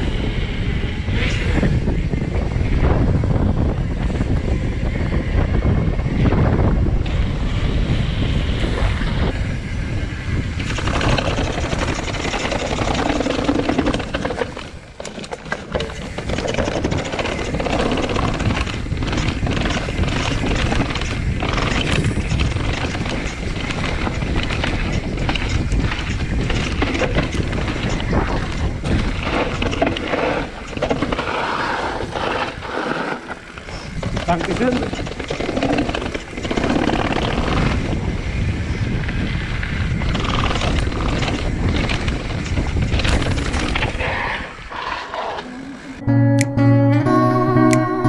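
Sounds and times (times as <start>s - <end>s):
bike tyres rolling on pavement: 0.0s - 46.0s
wind buffeting microphone: 0.0s - 46.0s
bike rattling over stone steps: 10.4s - 38.2s, 39.2s - 44.1s.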